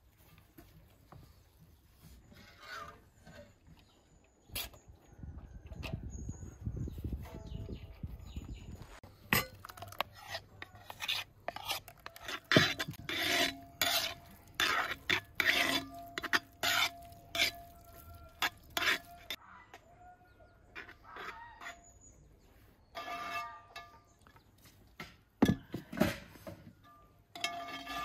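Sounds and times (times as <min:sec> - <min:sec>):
metal spoon scraping a pot: 0:02.2 - 0:03.6, 0:09.2 - 0:19.4, 0:22.8 - 0:24.1, 0:26.8 - 0:28.0.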